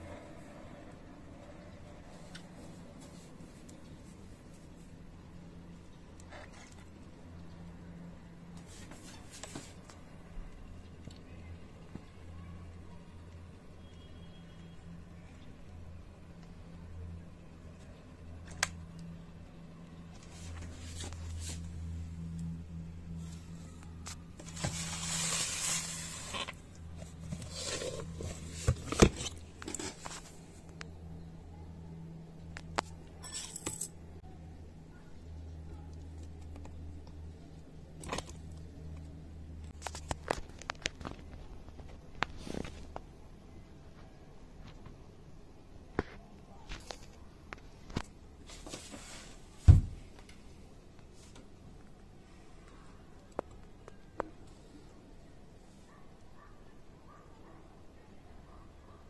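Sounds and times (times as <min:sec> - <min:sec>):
soft rustle: 0:23.2 - 0:30.7, 0:48.0 - 0:49.7
scraping in a plastic tub: 0:24.4 - 0:30.4.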